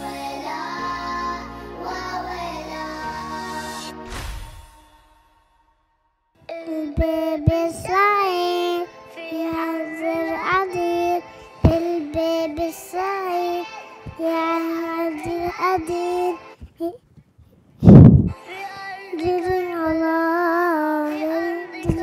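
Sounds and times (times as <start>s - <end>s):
child singing: 0.0s - 3.9s, 6.4s - 17.0s, 18.4s - 22.0s
music: 0.0s - 16.7s, 18.2s - 22.0s
sharp percussion hits: 3.8s - 6.2s.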